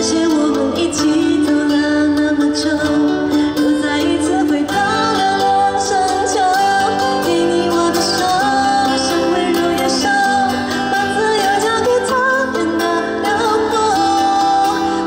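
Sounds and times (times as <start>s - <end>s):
guitar: 0.0s - 15.0s
person singing: 0.0s - 15.0s.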